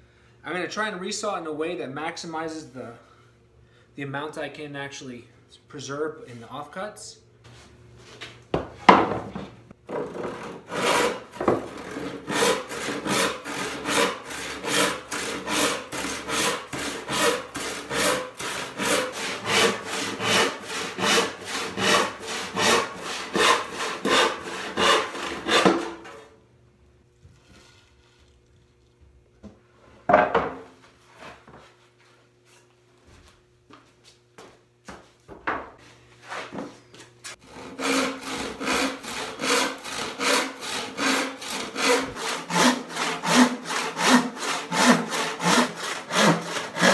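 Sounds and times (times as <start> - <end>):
handsaw cutting wood: 9.9 - 26.2, 37.4 - 46.9.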